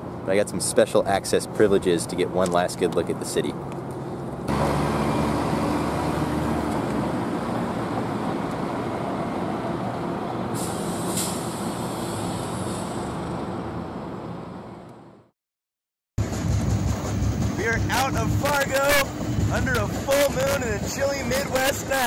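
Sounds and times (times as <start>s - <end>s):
street traffic: 0.0s - 15.3s, 16.2s - 22.0s
heavy vehicle engine running: 3.9s - 14.8s, 16.2s - 22.0s
air brakes hissing: 10.5s - 13.3s.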